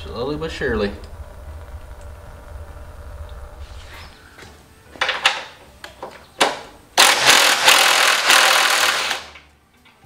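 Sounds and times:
cordless impact driver running: 7.0 - 9.4.

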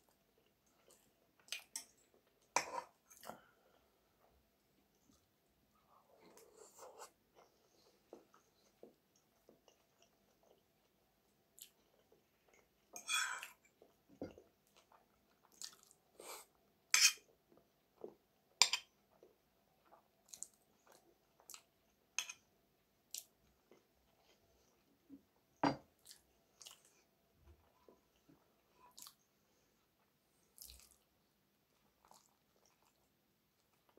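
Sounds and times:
chewing with mouth smacks: 14.7 - 16.0, 31.9 - 33.1.

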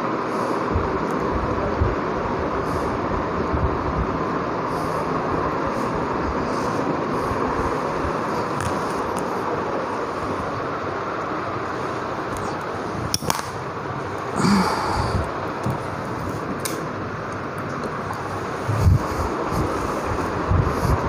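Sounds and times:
steady rushing noise: 0.0 - 21.0.

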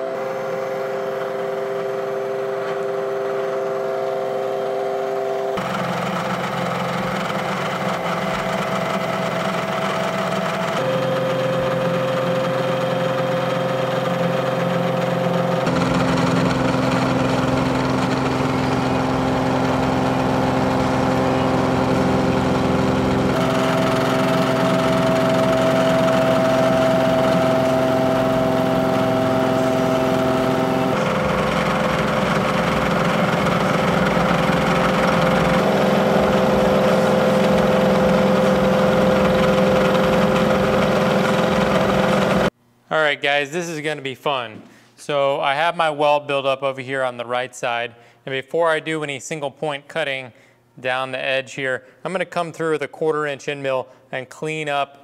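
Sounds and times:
milling machine cutting steel: 0.0 - 42.5.

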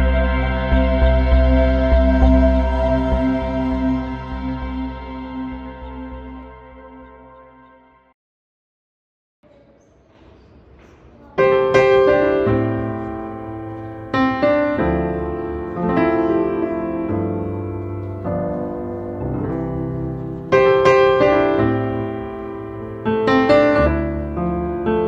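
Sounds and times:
slow piano chords: 0.0 - 8.1, 11.2 - 25.0.

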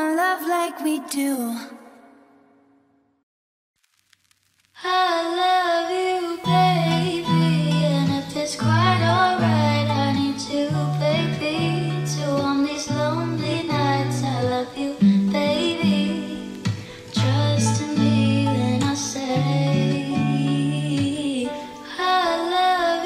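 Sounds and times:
person singing over music: 4.8 - 23.0.

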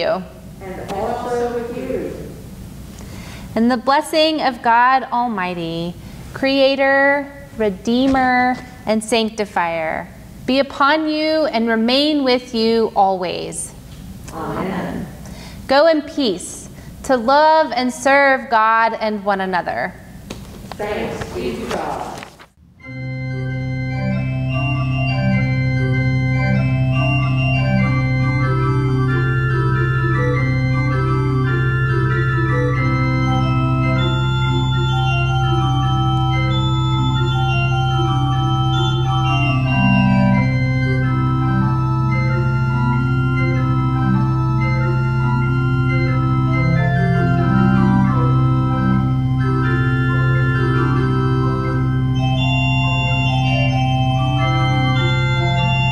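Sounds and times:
pipe organ playing: 0.8 - 2.4, 22.8 - 55.9.

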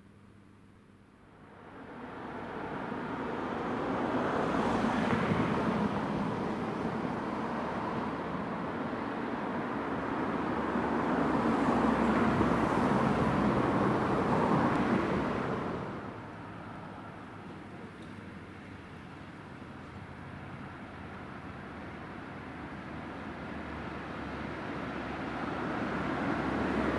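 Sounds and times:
cars passing by: 1.2 - 26.9.

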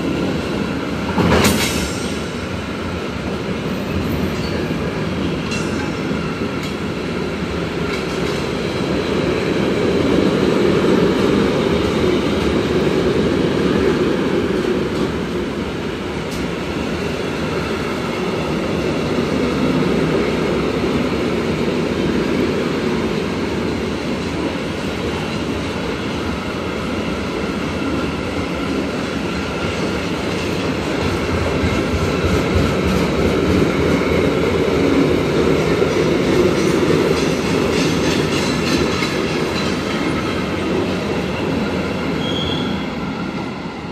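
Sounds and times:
train wheels rumbling on rails: 0.0 - 43.9.

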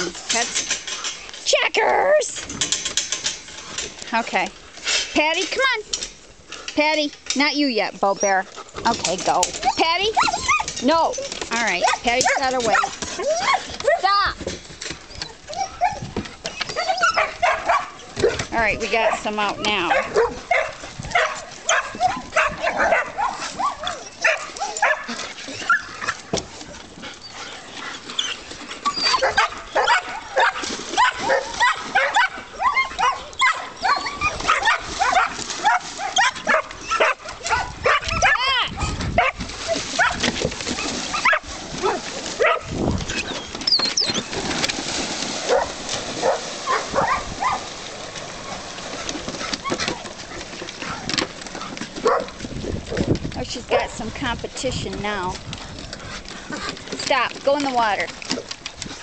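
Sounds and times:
dogs whining and yelping: 9.4 - 14.2, 14.8 - 44.4, 45.5 - 47.7, 49.4 - 53.0.

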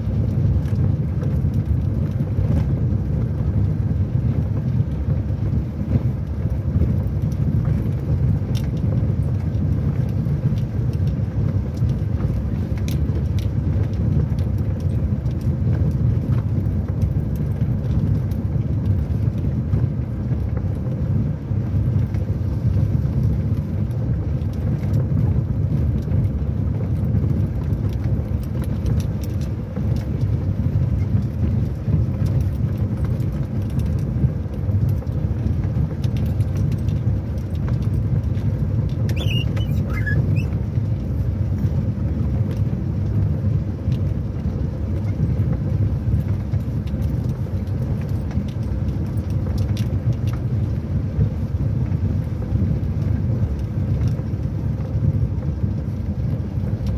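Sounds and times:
car rumbling on dirt road: 0.0 - 56.9
brief high squeak: 39.1 - 40.6.

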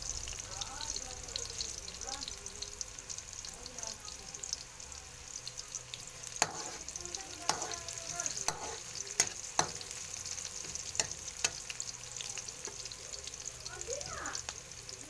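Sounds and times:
garlic and onion sizzling in oil: 0.0 - 15.0
spatula scraping and clacking on wok: 6.2 - 11.9.

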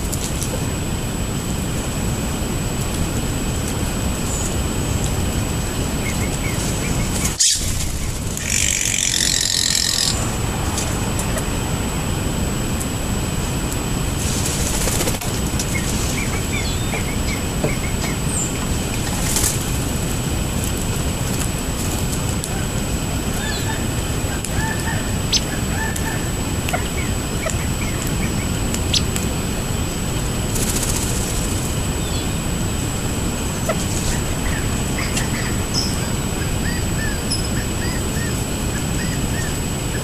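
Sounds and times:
bird chirps: 6.0 - 10.2, 15.7 - 18.6, 34.1 - 39.6
harsh high-pitched noise burst: 7.3 - 10.4.

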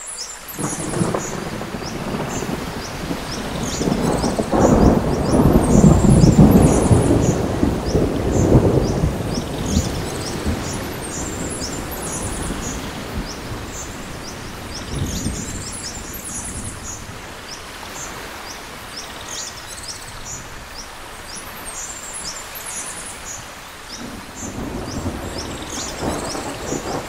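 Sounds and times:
birds chirping: 0.0 - 27.0
rain falling: 0.0 - 27.0
thunder rumbling: 0.6 - 17.4, 24.0 - 27.0.

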